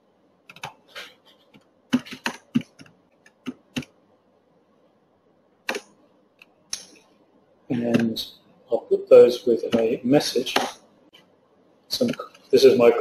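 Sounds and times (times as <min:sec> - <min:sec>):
keyboard typing: 0:00.5 - 0:04.0, 0:05.7 - 0:06.5.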